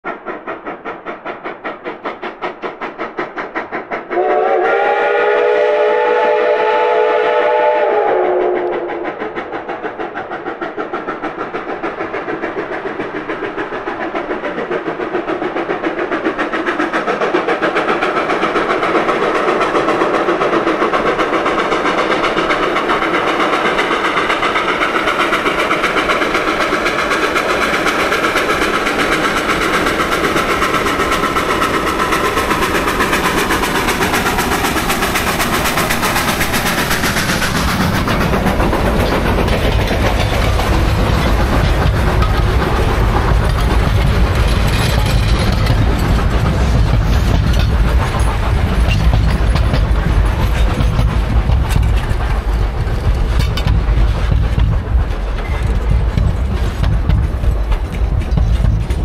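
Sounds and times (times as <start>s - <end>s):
steam locomotive chuffing: 0.0s - 59.0s
steam whistle blast: 4.2s - 9.0s.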